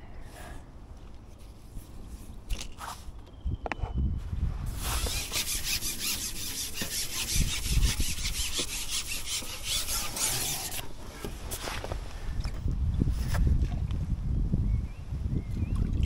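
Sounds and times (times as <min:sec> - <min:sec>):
fishing pole rasping rub: 0:04.8 - 0:10.9.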